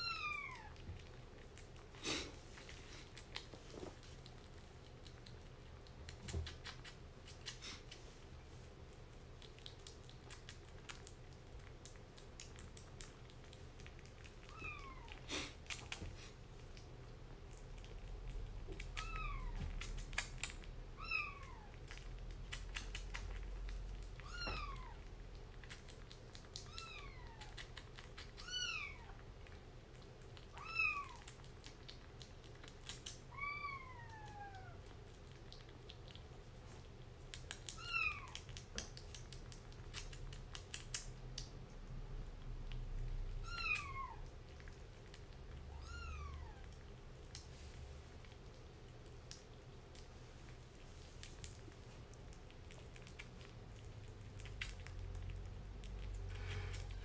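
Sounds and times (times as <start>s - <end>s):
kitten eating from a bowl: 0.0s - 57.0s
kitten mewing: 43.4s - 44.3s.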